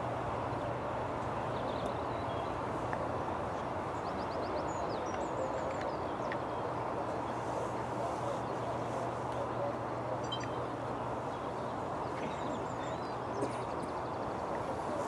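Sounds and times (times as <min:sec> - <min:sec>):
small birds chirping: 0:03.6 - 0:15.0.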